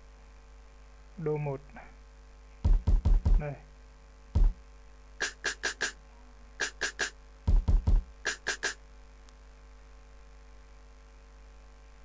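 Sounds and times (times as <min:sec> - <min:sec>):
drum machine snare hits: 0:02.6 - 0:03.6, 0:04.4 - 0:04.6, 0:05.2 - 0:06.0, 0:06.6 - 0:08.8.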